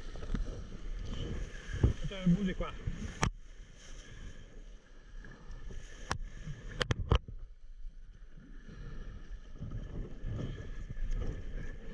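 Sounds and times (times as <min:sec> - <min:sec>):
wind on microphone: 0:00.0 - 0:03.4
water rushing along hulls: 0:00.0 - 0:11.9.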